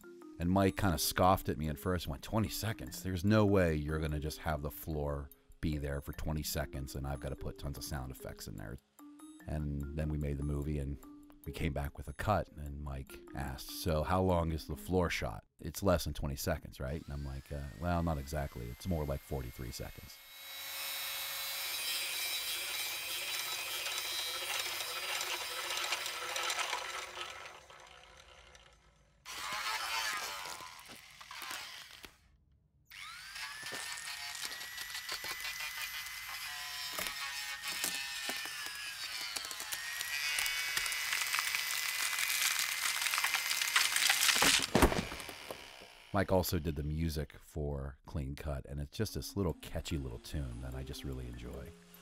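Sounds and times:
saw blades cutting: 16.8s - 32.2s, 32.9s - 47.0s, 50.0s - 52.0s.

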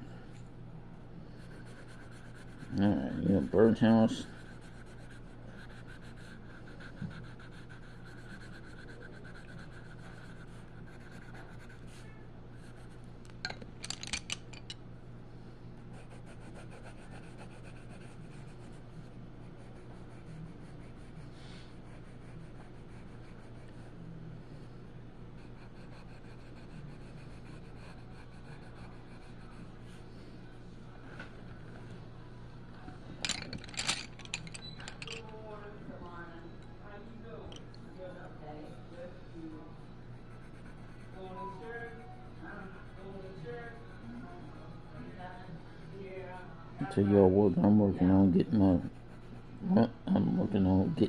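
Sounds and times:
steady low hum: 0.0s - 51.0s
pencil scratching on paper: 1.3s - 13.0s, 15.9s - 18.8s, 19.4s - 24.0s, 25.4s - 30.0s, 40.1s - 44.2s, 48.6s - 49.5s.

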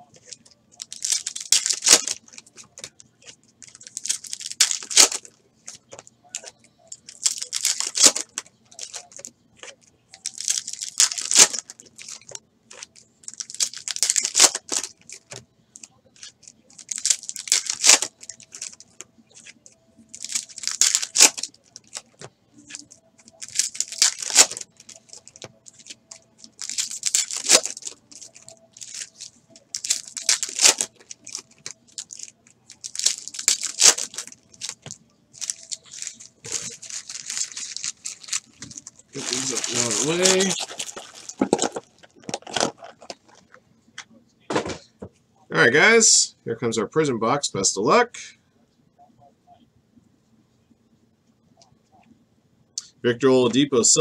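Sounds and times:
foil wrappers tearing: 0.8s - 2.8s, 3.6s - 5.3s, 7.1s - 15.3s, 16.2s - 43.4s.

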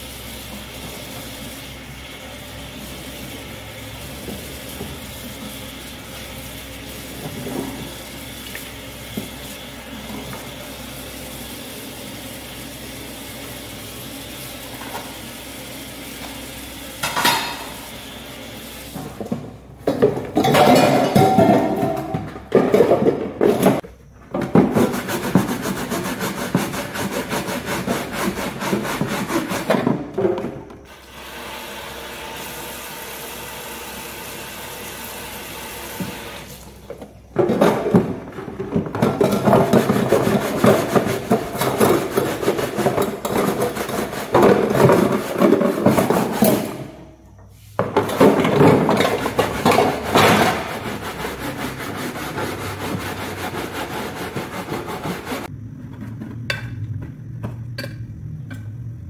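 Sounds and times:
tap water running: 0.0s - 22.2s, 30.9s - 37.0s
stiff brush scrubbing plastic basket: 24.6s - 30.1s, 37.5s - 46.6s, 48.2s - 55.5s.

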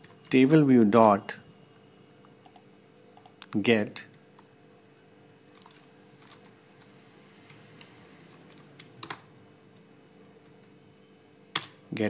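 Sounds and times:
faint steady hum: 0.0s - 12.0s
keyboard keystrokes: 2.4s - 3.5s.

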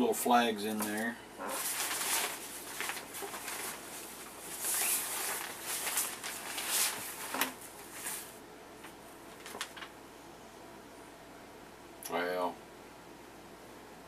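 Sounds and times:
package wrapping rustling: 0.7s - 9.9s.

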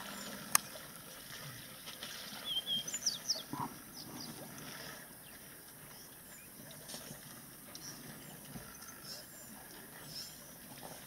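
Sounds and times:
bird chirps: 2.4s - 4.4s.

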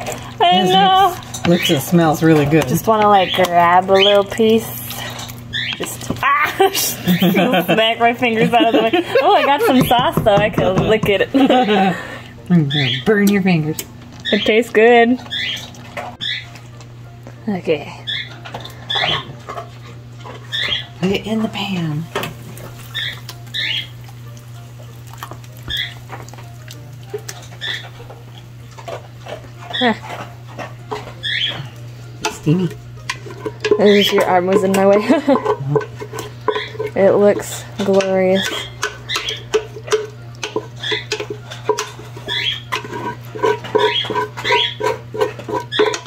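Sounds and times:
dog whining: 18.0s - 21.0s, 22.8s - 24.1s, 25.7s - 26.1s, 26.7s - 28.2s, 28.8s - 31.9s.

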